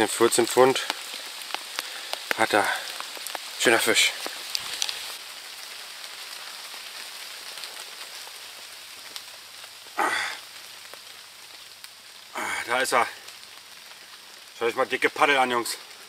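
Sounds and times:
steady rain falling: 0:00.0 - 0:16.0
person vocal sound: 0:10.0 - 0:10.4, 0:12.4 - 0:12.8.

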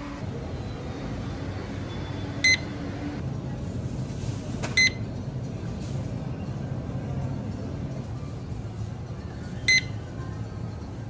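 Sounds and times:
supermarket background hum: 0:00.0 - 0:11.0
short electronic beeps: 0:01.9 - 0:02.8, 0:09.7 - 0:10.0.

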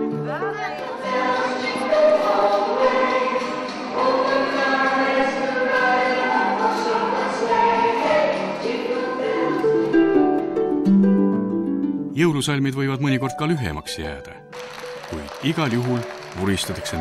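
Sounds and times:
choir singing: 0:00.4 - 0:10.0.

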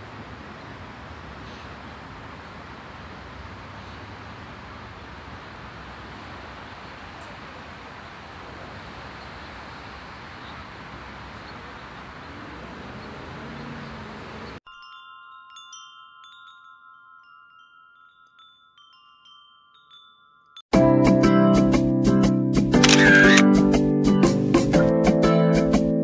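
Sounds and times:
steady outdoor hiss: 0:00.0 - 0:20.4
wind chime tinkling: 0:14.6 - 0:20.7.

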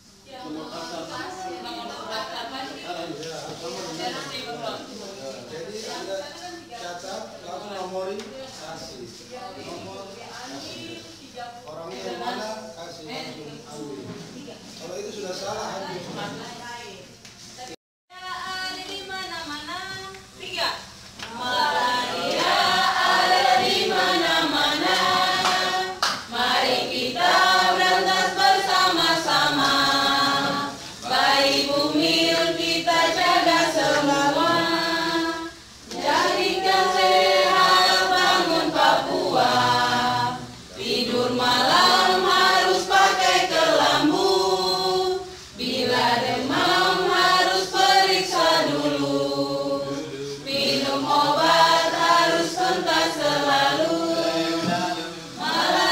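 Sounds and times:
group singing together: 0:00.0 - 0:16.8, 0:20.8 - 0:55.9.

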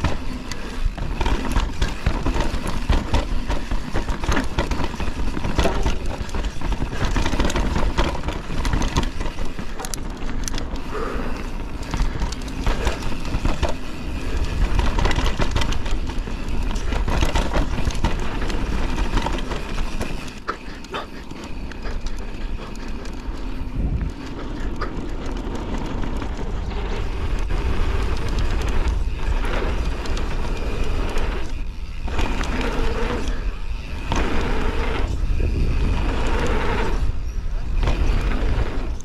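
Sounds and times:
bike rattling: 0:00.0 - 0:39.0
knocks and clatters over bumps: 0:00.0 - 0:39.0
wind buffeting microphone: 0:21.0 - 0:39.0.

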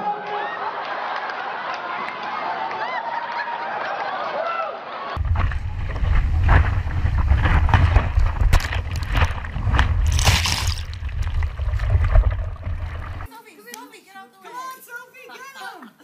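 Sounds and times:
wind buffeting microphone: 0:05.2 - 0:13.3.

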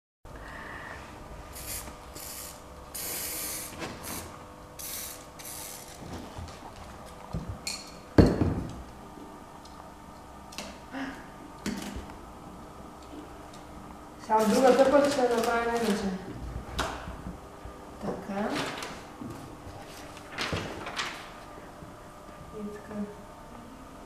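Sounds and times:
spray paint can hissing: 0:01.6 - 0:06.0
paper rustling: 0:19.7 - 0:21.4.

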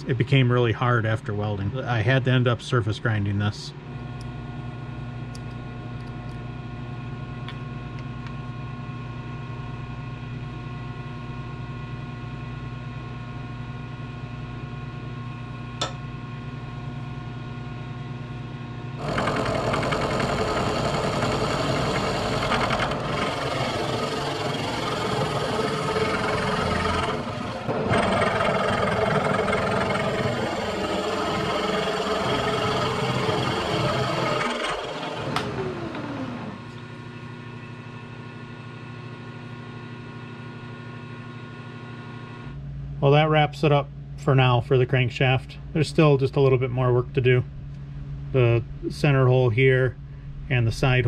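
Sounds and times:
milling machine motor hum: 0:15.3 - 0:42.6
end mill cutting metal: 0:19.0 - 0:36.7.

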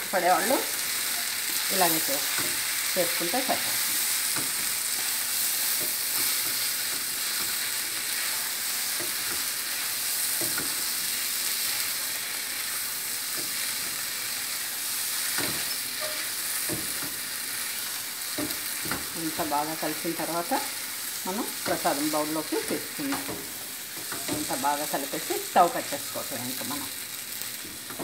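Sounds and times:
food sizzling in a pan: 0:00.0 - 0:28.0
spatula scraping a pan: 0:15.1 - 0:19.1.

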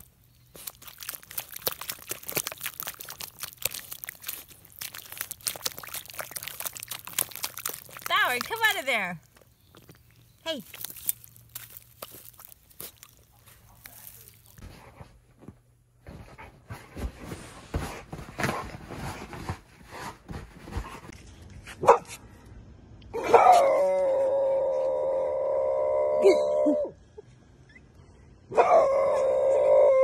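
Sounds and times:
puppy scratching in mulch: 0:00.0 - 0:15.1
dog howling: 0:23.2 - 0:26.9, 0:28.6 - 0:30.0.

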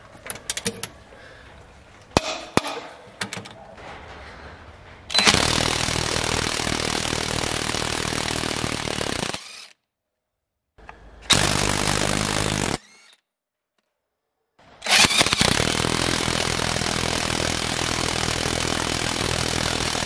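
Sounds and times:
impact wrench hammering: 0:02.2 - 0:03.0.

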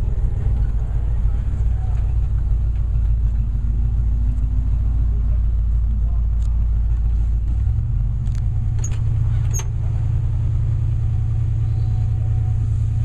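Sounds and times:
car engine low rumble: 0:00.0 - 0:13.0
faint squeaks and clicks: 0:08.3 - 0:09.8.

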